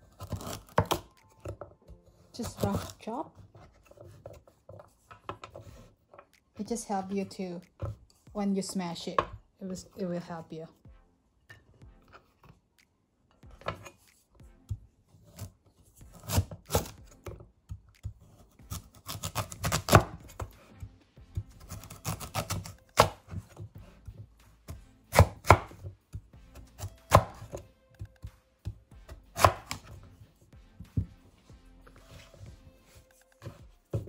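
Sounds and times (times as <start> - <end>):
cleaver chopping on wooden board: 0.2 - 1.3, 17.9 - 20.6, 21.4 - 23.7, 24.7 - 30.0.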